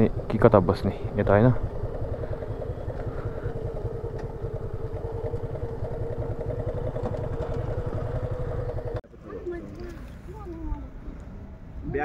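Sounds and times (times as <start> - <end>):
motorcycle engine running: 0.0 - 9.0.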